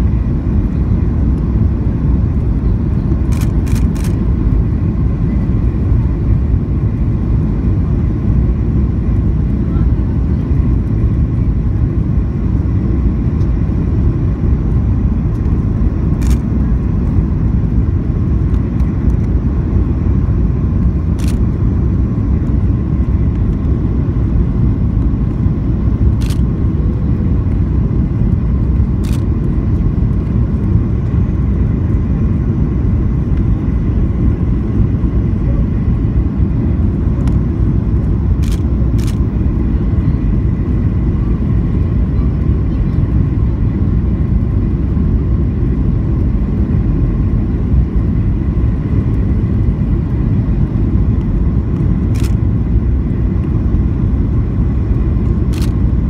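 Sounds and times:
airplane cabin engine rumble: 0.0 - 56.0
faint steady whine: 0.0 - 56.0.

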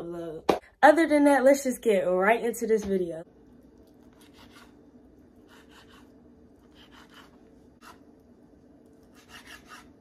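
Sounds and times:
steady low hum: 3.2 - 10.0
knife scraping on cutting board: 4.1 - 4.8, 5.4 - 8.1, 9.0 - 10.0.

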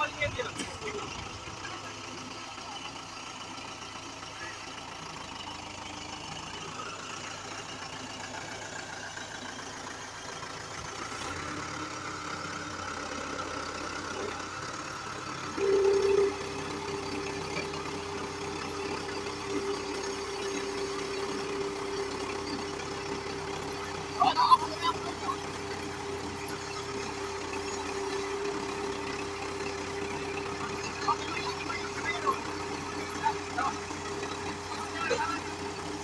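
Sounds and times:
tractor diesel engine running: 0.0 - 36.0
steady droning tone: 15.6 - 16.5.

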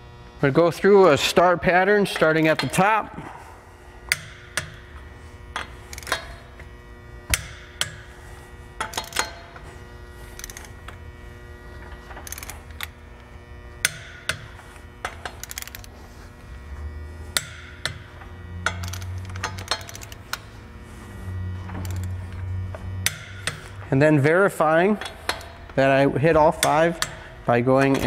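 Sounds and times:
steady electrical hum: 0.0 - 28.0
torque wrench clicking: 4.1 - 6.6, 8.8 - 9.6, 10.3 - 11.0, 12.1 - 13.0, 13.8 - 16.0, 17.3 - 20.5, 21.7 - 22.4, 24.9 - 25.8, 26.5 - 28.0.

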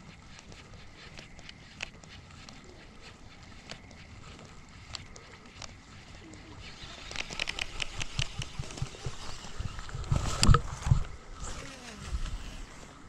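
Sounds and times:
sharp clicks: 0.0 - 12.6
camera handling knocks and rubbing: 7.1 - 11.2.

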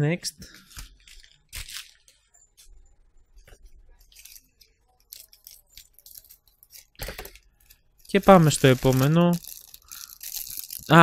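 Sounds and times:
plastic mailer bag crinkling: 4.0 - 11.0.

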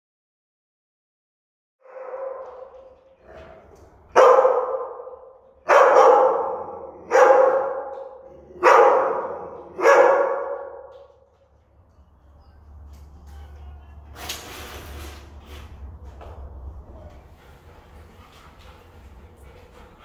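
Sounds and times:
dog barking: 1.8 - 2.8, 4.1 - 11.0.

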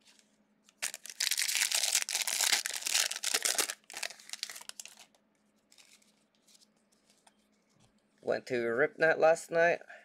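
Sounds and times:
plastic wrapper crinkling: 0.7 - 6.6.

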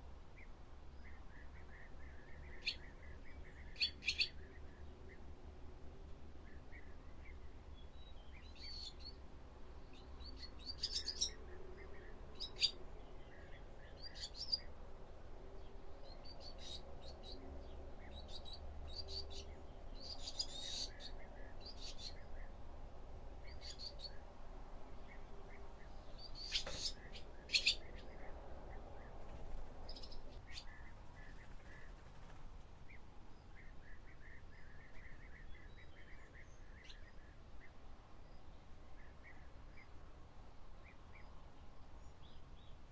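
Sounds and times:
swallows chirping and twittering: 0.4 - 5.3, 6.4 - 14.8, 15.4 - 22.7, 23.3 - 24.3, 24.9 - 40.0.

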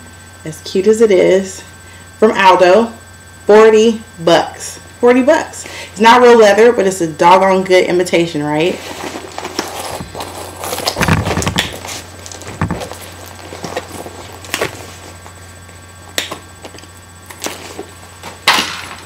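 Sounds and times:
handbags rustling: 8.6 - 15.6
dull thumps: 10.9 - 15.3.

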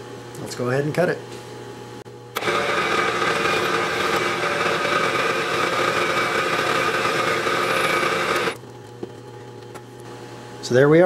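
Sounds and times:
milling machine whine: 2.4 - 8.6.

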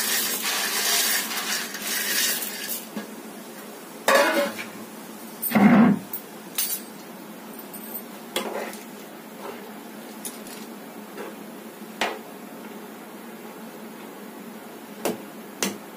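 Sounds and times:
gas stove hiss: 0.0 - 6.2
metal lid clanking: 4.1 - 4.6.

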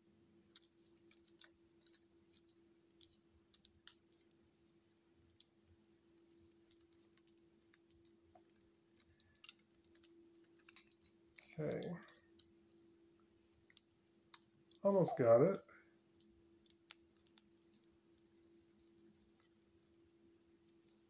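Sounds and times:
plastic toy parts clicking: 0.5 - 4.4, 6.2 - 12.6, 13.4 - 14.9, 16.1 - 19.5.

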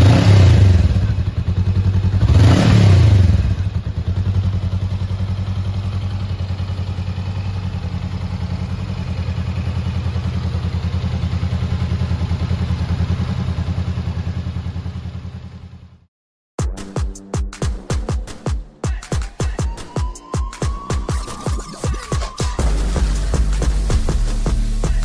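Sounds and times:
motorcycle engine idling: 0.0 - 16.1.

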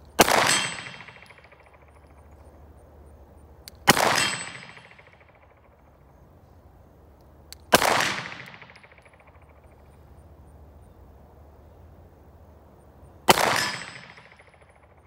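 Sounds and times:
pistol shots echoing: 0.2 - 2.2, 3.8 - 5.7, 7.7 - 9.6, 13.3 - 14.8.

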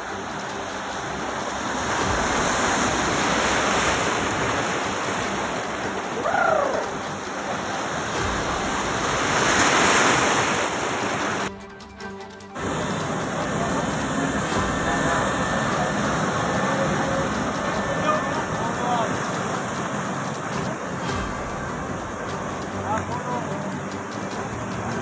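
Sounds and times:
floodwater sloshing and rushing: 0.0 - 25.0
pitched cry: 6.2 - 7.0.

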